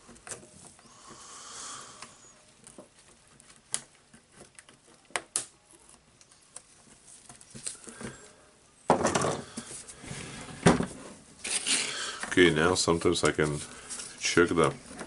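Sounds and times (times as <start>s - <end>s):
heavy tool scraping on wooden bench: 9.5s - 12.0s.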